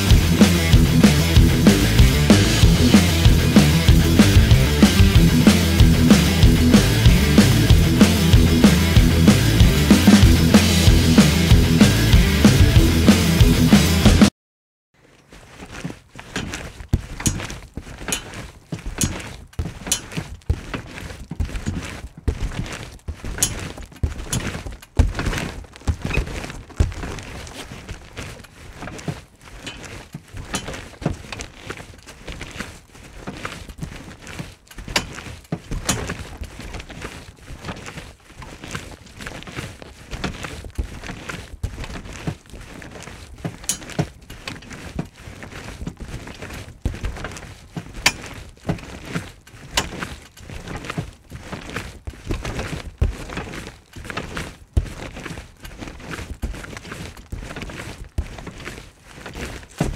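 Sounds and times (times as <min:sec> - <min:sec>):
trampoline mat thudding: 0:15.3 - 0:59.9.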